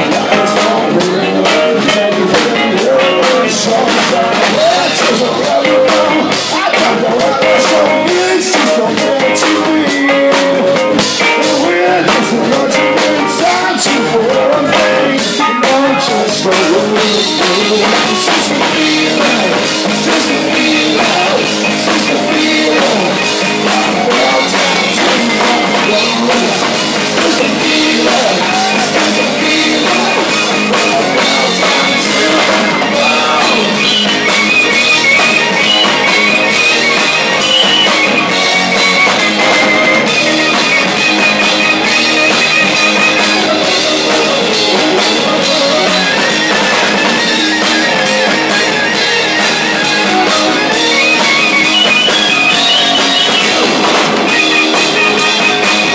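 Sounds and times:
man singing: 0.0s - 49.1s
drum kit: 0.0s - 55.9s
electric bass: 0.0s - 55.9s
electric guitar: 0.0s - 55.9s.

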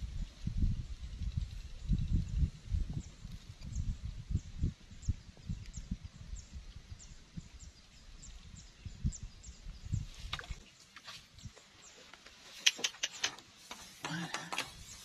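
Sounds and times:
wind buffeting microphone: 0.0s - 10.6s.

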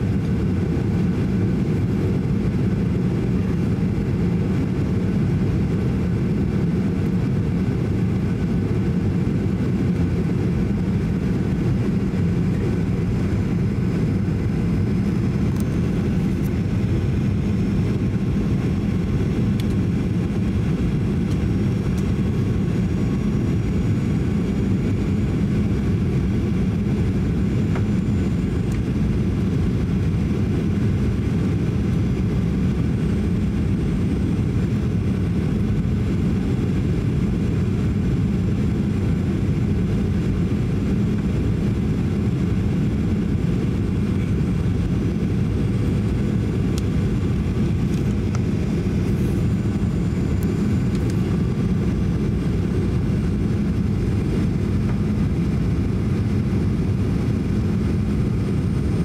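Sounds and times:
airplane cabin rumble: 0.0s - 59.0s.

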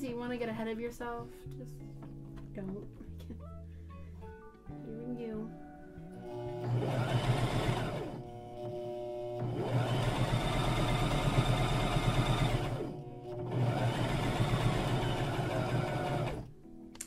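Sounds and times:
sewing machine stitching: 6.4s - 16.5s.

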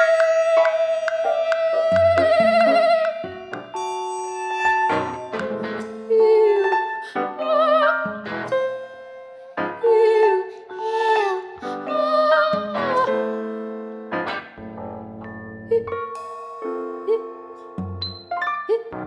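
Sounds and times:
woman singing with vibrato: 0.0s - 3.6s, 6.1s - 13.4s
electric keyboard chords: 0.0s - 10.6s, 11.6s - 19.0s.

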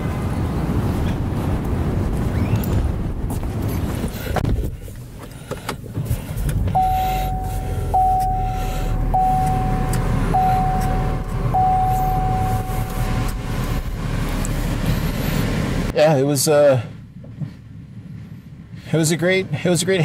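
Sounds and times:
low car rumble: 0.0s - 20.0s
car warning chime: 6.8s - 13.8s.

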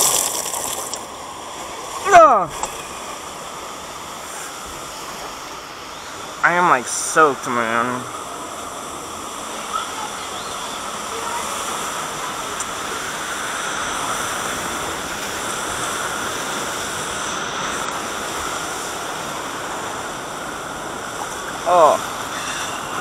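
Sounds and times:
water splashing against raft: 0.0s - 5.5s
rushing churning water: 0.0s - 23.0s.

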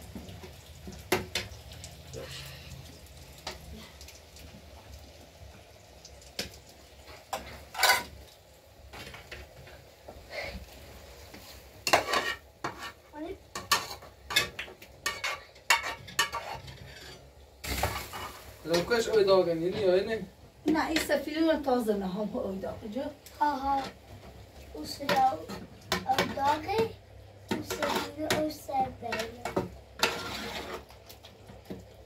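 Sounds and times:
faint frying sizzle: 0.0s - 32.0s
metal utensils clinking on pans: 7.1s - 8.2s, 11.8s - 19.9s, 24.9s - 26.9s, 27.5s - 30.8s.

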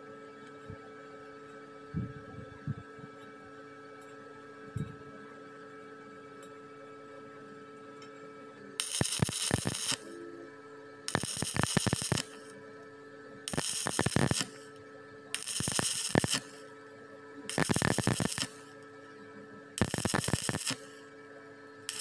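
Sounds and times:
steady hum: 8.6s - 22.0s
welding arc crackling: 8.8s - 10.1s, 11.1s - 12.5s, 13.5s - 14.8s, 15.4s - 16.7s, 17.5s - 18.8s, 19.8s - 21.1s.

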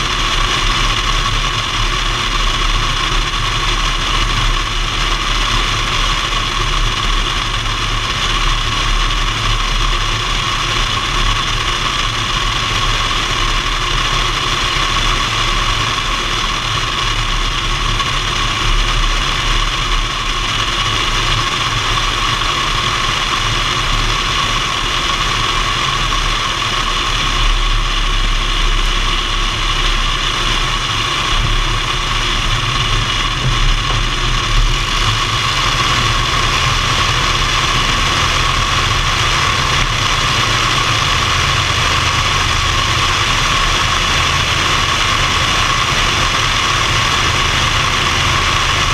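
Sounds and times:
aircraft engine and propeller: 0.0s - 48.9s
rushing airflow: 15.3s - 48.9s.

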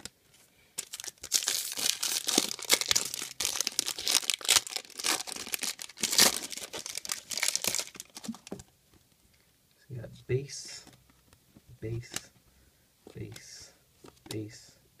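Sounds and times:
foil wrappers tearing and crinkling: 0.8s - 8.5s.

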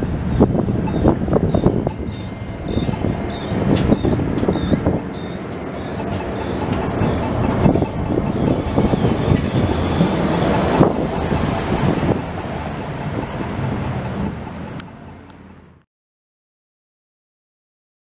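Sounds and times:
tram wheels rumbling on rails: 0.0s - 15.8s
tram wheels squealing: 0.1s - 15.3s.

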